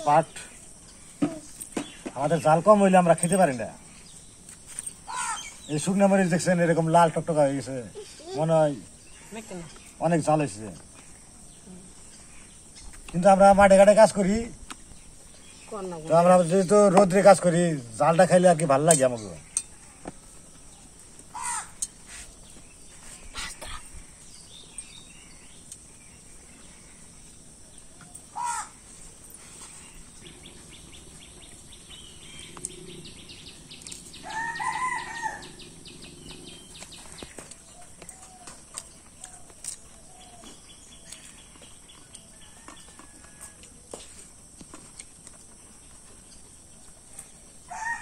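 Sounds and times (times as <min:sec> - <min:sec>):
rooster crowing: 0:34.1 - 0:35.8, 0:47.7 - 0:48.0.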